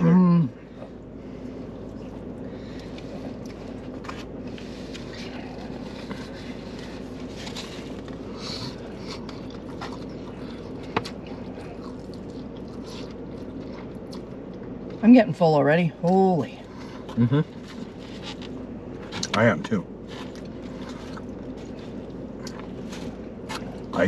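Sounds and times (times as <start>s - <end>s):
steady low hum: 0.0s - 24.0s
soft chewing: 0.5s - 15.0s, 16.6s - 24.0s.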